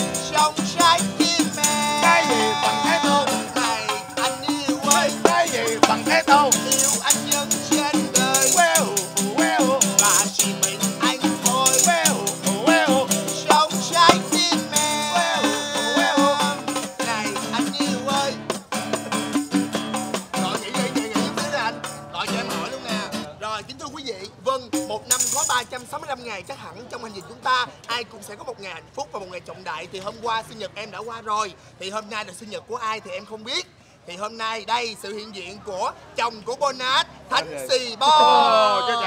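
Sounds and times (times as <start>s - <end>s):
man singing: 0.0s - 18.6s, 20.3s - 23.3s, 24.3s - 25.6s, 38.1s - 39.0s
tambourine shaken and struck: 0.0s - 22.6s, 24.8s - 25.6s
acoustic guitar: 0.0s - 23.4s, 24.2s - 25.6s.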